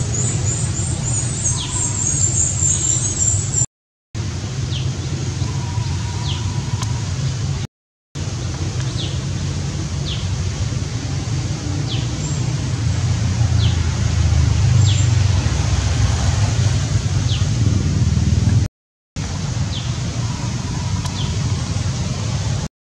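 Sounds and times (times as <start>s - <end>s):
low rumble of traffic or wind: 0.0s - 3.6s, 4.2s - 22.7s
high falling bird chirps: 0.0s - 3.7s.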